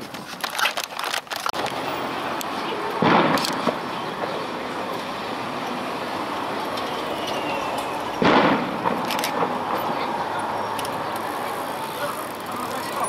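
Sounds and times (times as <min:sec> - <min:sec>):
outdoor background noise: 0:00.0 - 0:13.0
firework bang: 0:03.0 - 0:03.8, 0:08.2 - 0:09.6.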